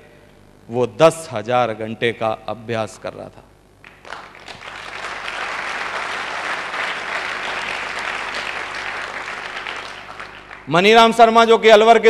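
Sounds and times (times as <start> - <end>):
audience applauding: 3.8 - 10.7.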